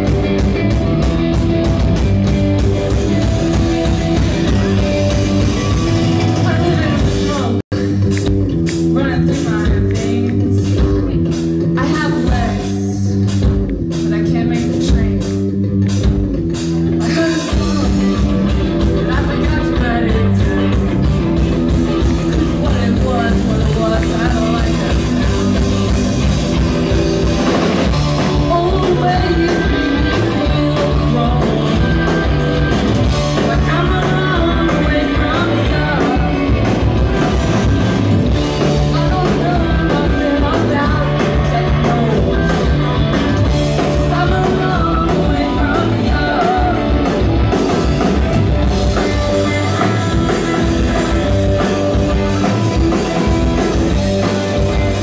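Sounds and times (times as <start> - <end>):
bass guitar: 0.0 - 55.0
drum kit: 0.0 - 55.0
electric guitars: 0.0 - 55.0
woman singing: 8.9 - 15.4, 17.0 - 21.1, 21.8 - 25.9, 28.2 - 37.4, 38.4 - 48.0, 48.9 - 51.8.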